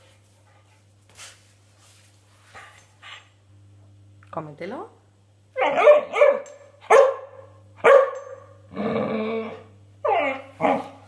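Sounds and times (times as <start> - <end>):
puppy barking: 5.6 - 8.6
puppy growling: 8.6 - 11.0.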